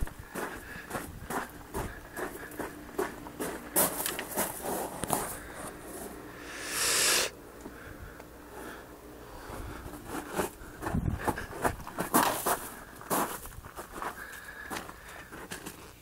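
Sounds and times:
long hiss: 6.4 - 7.4.

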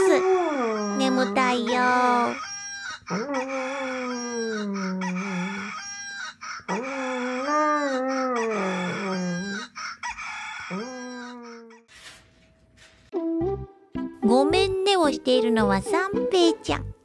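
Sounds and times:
recorded rooster crowing: 2.4 - 11.9.

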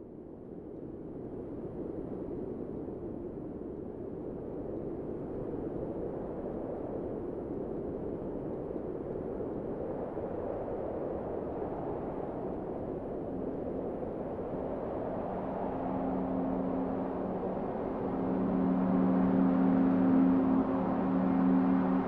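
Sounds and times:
low two-tone hum: 13.8 - 22.0.

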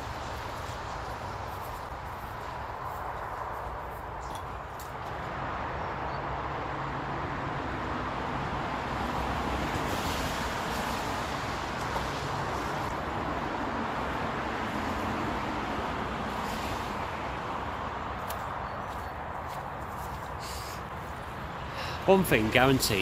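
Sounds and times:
cars passing: 0.0 - 23.0
road traffic noise: 0.0 - 23.0.

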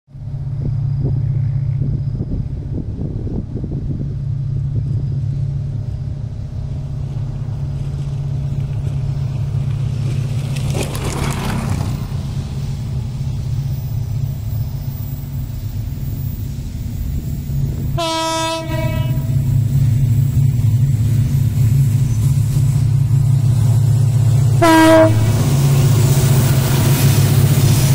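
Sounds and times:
diesel locomotive engine drone: 0.1 - 27.9
train horn blast: 17.9 - 19.6, 24.5 - 25.7.

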